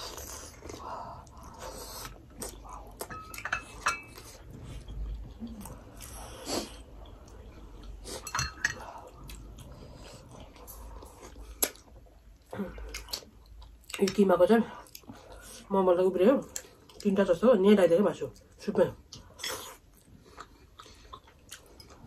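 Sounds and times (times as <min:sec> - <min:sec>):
chewing sounds: 0:00.0 - 0:15.7, 0:18.3 - 0:22.0
spoons clinking on bowls: 0:03.1 - 0:04.2, 0:08.2 - 0:08.8.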